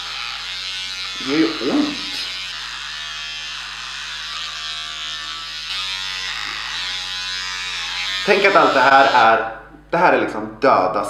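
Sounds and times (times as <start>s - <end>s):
electric hair clipper buzzing: 0.0s - 9.4s.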